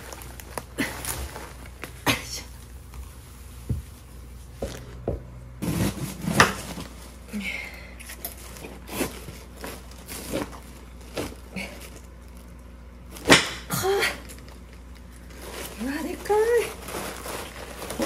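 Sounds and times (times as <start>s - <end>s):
newspaper crinkling: 0.0s - 2.0s, 14.4s - 18.0s.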